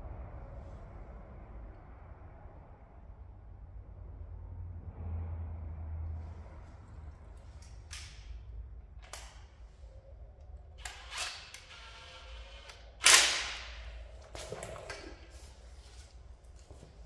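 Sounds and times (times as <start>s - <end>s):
tool handling clicks and knocks: 9.0s - 9.6s.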